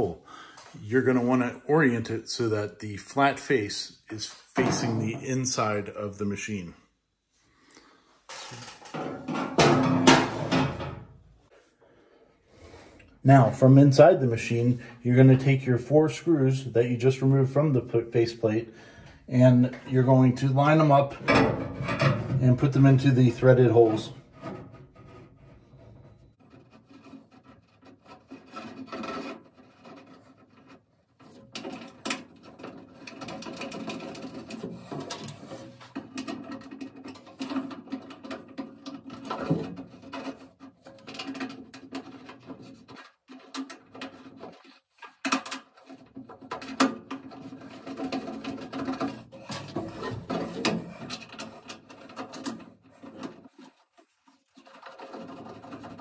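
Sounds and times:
fingers rubbing and scraping parts: 0:22.8 - 0:56.0.

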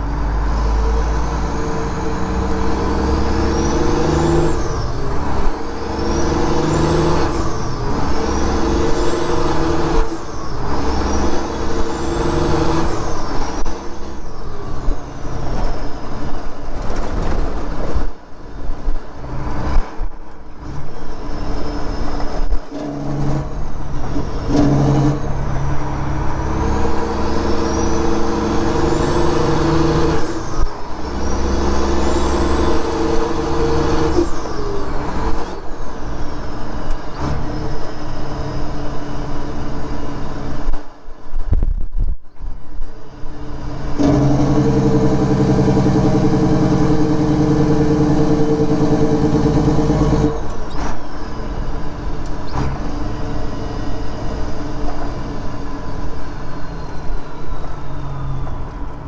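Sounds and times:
truck diesel engine: 0:00.0 - 0:59.0
turbocharger whistle: 0:26.4 - 0:35.6.

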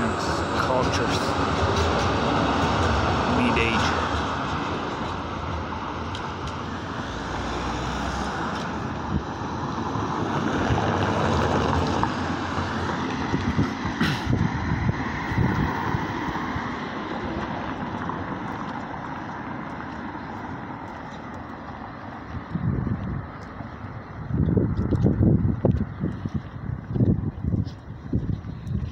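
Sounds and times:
cars passing: 0:00.0 - 0:28.9
wind rumbling on microphone: 0:00.0 - 0:28.9.

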